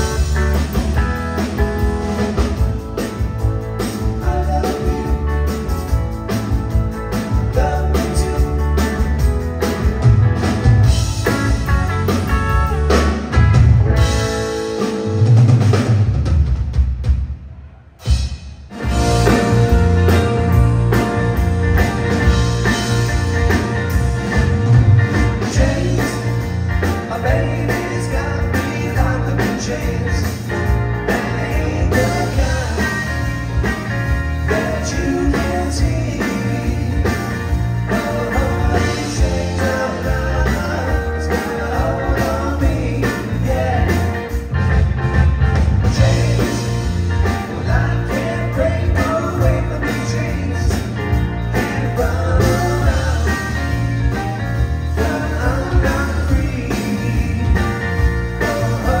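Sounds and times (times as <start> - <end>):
live rock band playing: 0.0 - 59.0
lead vocal singing: 25.2 - 33.7, 34.3 - 44.5, 45.8 - 59.0.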